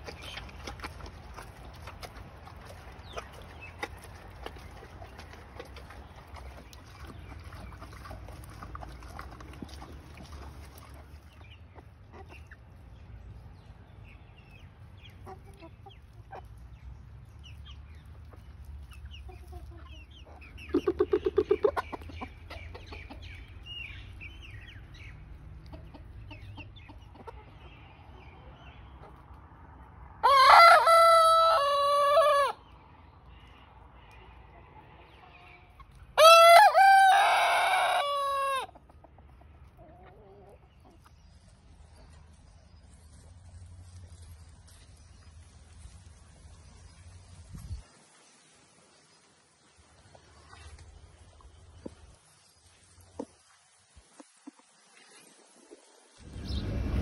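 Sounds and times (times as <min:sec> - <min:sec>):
chickens clucking: 0:00.0 - 0:47.8, 0:49.9 - 0:57.0
rooster crowing: 0:30.2 - 0:32.6, 0:36.2 - 0:38.7.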